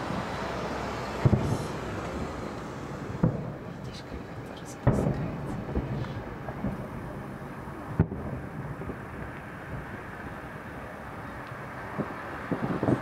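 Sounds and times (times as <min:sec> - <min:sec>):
low background rumble: 0:00.0 - 0:13.0
faint firework pops: 0:01.2 - 0:01.7, 0:03.2 - 0:04.0, 0:04.8 - 0:06.9, 0:08.0 - 0:09.5
firework shell bang: 0:08.0 - 0:09.0.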